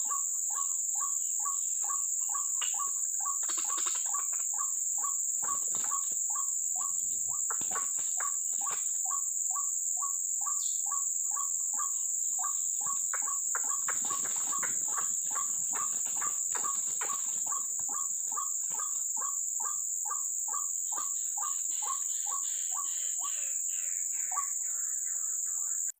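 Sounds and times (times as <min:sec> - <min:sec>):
high insect drone: 0:00.0 - 0:25.9
waterhen calls: 0:11.4 - 0:19.0.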